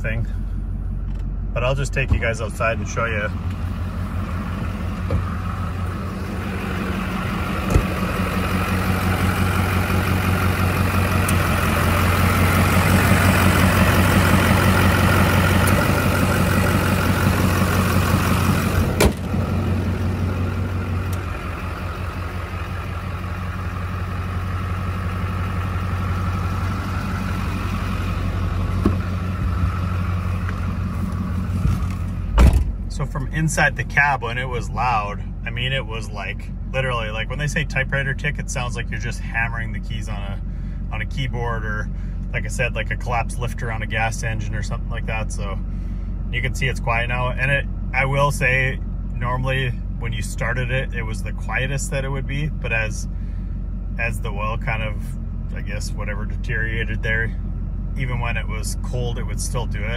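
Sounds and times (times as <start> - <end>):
diesel engine idling: 0.0 - 59.9
thump: 7.7 - 8.0, 19.0 - 19.3, 28.8 - 29.1, 32.4 - 32.8.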